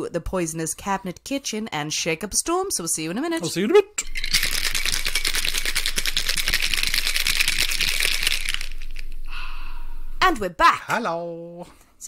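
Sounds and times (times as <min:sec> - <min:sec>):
ice rattling in cocktail shaker: 0:04.0 - 0:09.1.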